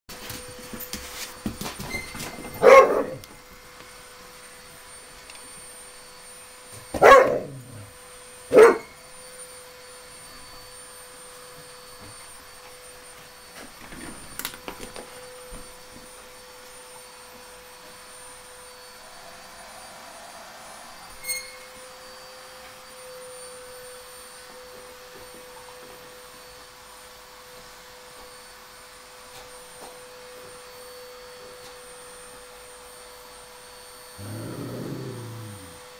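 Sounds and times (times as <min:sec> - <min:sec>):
soft scuffling: 0:00.2 - 0:02.0
dog barking: 0:02.6 - 0:03.2, 0:07.0 - 0:07.9, 0:08.5 - 0:08.9.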